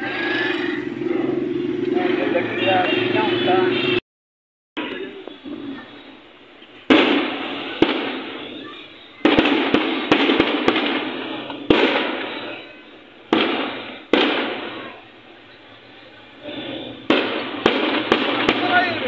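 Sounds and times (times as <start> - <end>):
fireworks bangs echoing: 4.8 - 19.0.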